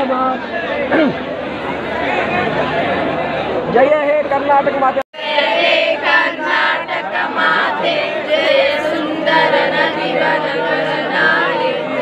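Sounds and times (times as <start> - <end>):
group singing in unison: 5.2 - 12.0.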